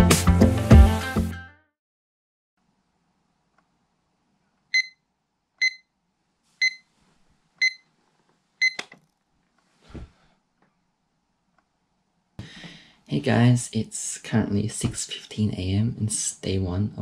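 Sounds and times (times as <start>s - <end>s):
digital alarm clock beeping: 4.8s - 5.0s, 5.6s - 5.9s, 6.6s - 6.8s, 7.6s - 7.8s, 8.6s - 8.8s.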